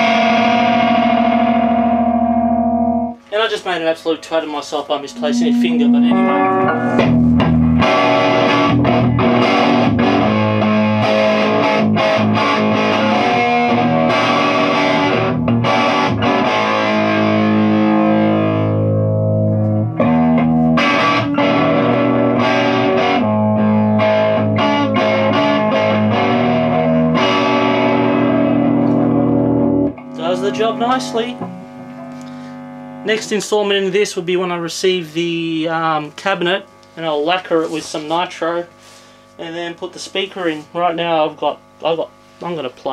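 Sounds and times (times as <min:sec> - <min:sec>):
overdriven electric guitar chords: 0:00.0 - 0:03.3, 0:05.0 - 0:34.0.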